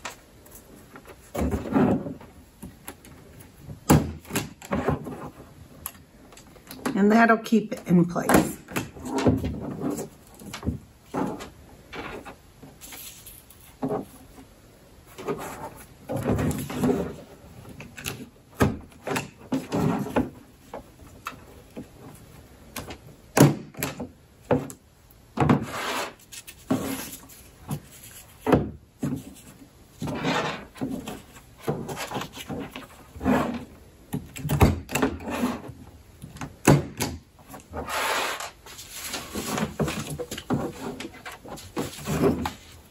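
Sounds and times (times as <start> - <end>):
paper rustling on table: 12.1 - 14.4, 25.7 - 33.6, 37.5 - 42.9.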